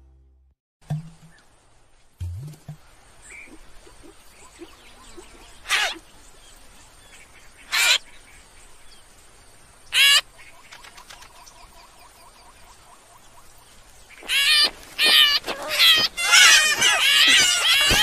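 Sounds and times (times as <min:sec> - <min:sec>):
cartoon chicks peeping: 0:14.2 - 0:18.0.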